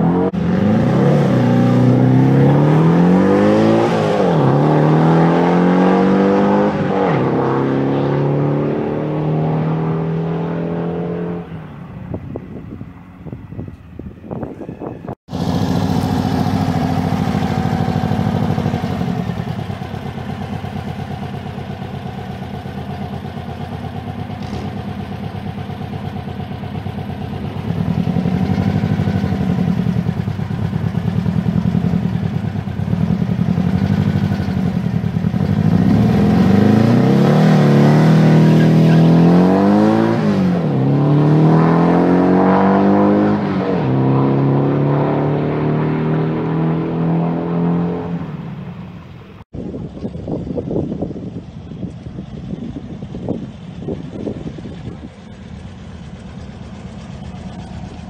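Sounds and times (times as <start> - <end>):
turbocharged engine revving: 0.0 - 11.6, 15.2 - 49.5.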